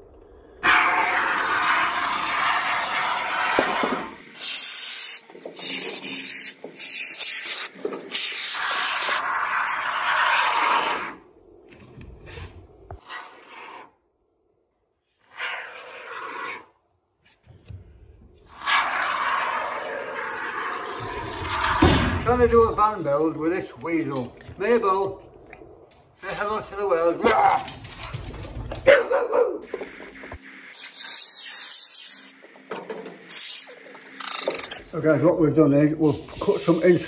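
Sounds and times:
rough rubbing and scraping: 29.6 - 35.0.

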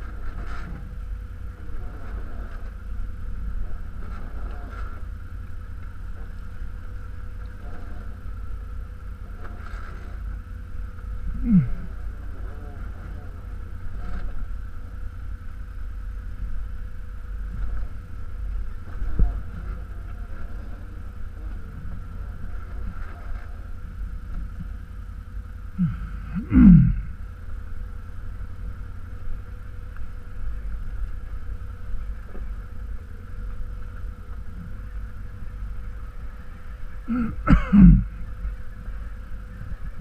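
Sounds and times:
atv engine running: 0.0 - 40.0
short vocal sound falling pitch: 11.3 - 11.9, 25.8 - 27.2.

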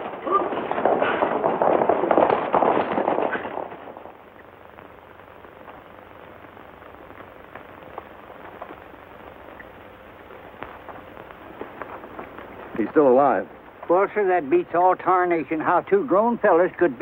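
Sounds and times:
horses galloping: 0.0 - 6.4, 7.0 - 17.0.

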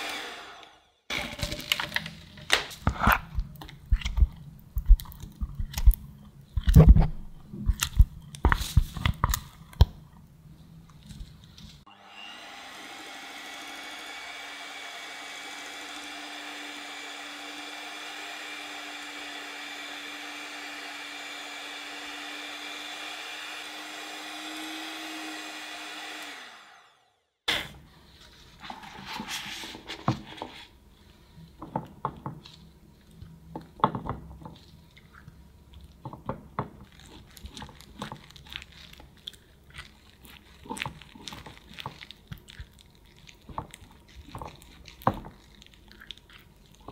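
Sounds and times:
electric hand mixer running: 0.0 - 1.4, 11.9 - 27.1.

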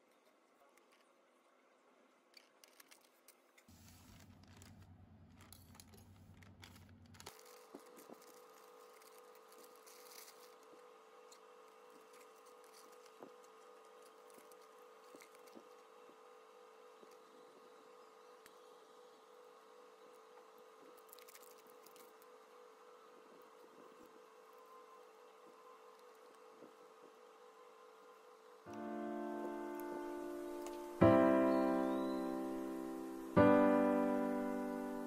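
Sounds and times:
faint steady hum: 0.0 - 35.0
scissors cutting plastic: 2.3 - 15.9
plastic bags crinkling: 4.1 - 11.0.

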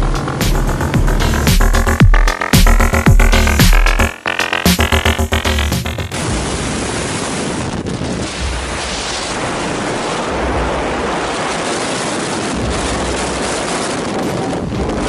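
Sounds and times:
wind rushing over microphone: 6.1 - 15.0.

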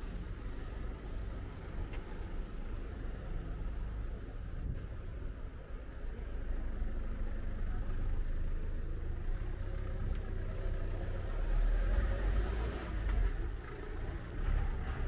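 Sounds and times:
van engine rumbling past: 6.1 - 15.0.

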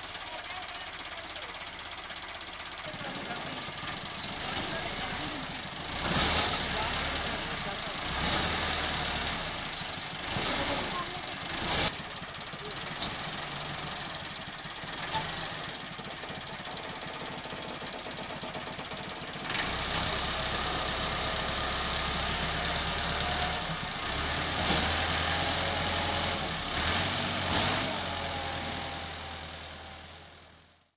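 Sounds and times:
tractor diesel engine running: 0.0 - 30.9.

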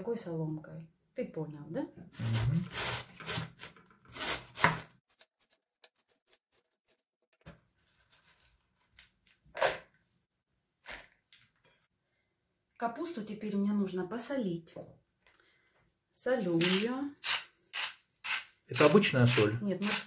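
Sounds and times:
knife rasping through cabbage: 2.2 - 7.0.

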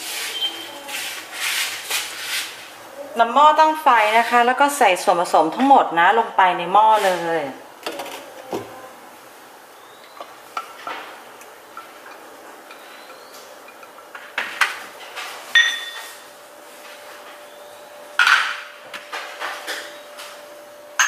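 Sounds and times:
bowls clinking against saucepan: 15.5 - 16.1.

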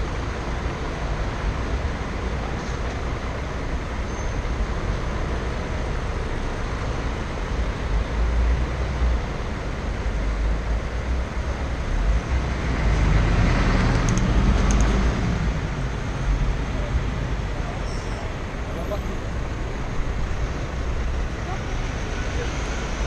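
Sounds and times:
road traffic: 0.0 - 23.0
high clicks: 13.9 - 15.0.

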